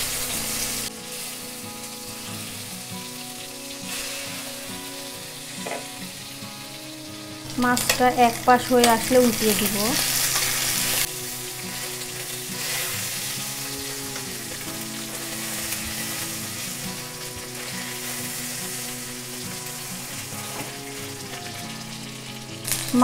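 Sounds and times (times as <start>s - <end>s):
fish sizzling in hot oil: 0.0s - 23.0s
spatula turning fish: 7.6s - 23.0s.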